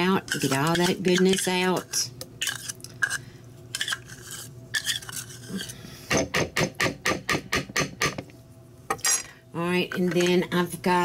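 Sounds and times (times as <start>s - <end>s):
metal spoon scraping a cup: 0.0s - 5.8s.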